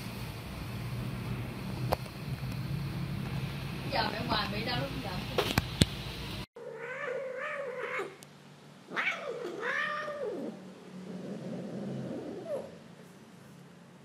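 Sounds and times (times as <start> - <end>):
cat yowling: 6.6 - 8.2, 8.9 - 10.6.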